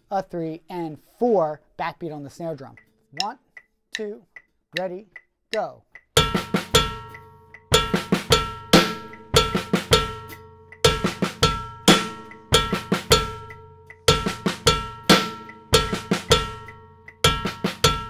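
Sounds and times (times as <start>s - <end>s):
cowbell strikes: 6.2s - 18.0s
drum kit funk groove: 6.2s - 18.0s.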